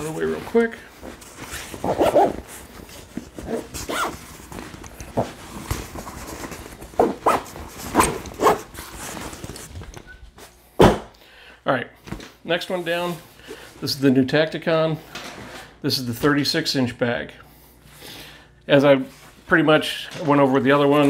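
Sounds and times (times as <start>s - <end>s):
rustling fabric bag: 0.0s - 9.9s.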